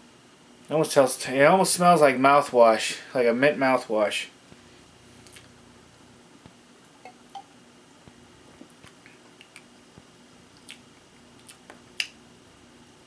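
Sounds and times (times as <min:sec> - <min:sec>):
low steady hum: 0:00.0 - 0:13.0
lip and tongue clicks: 0:08.8 - 0:09.7, 0:10.6 - 0:12.2.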